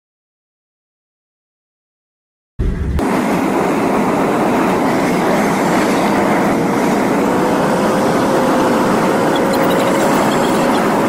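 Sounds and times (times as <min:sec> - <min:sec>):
faint whine: 0:02.6 - 0:11.0
road and tyre noise in car: 0:03.0 - 0:11.0.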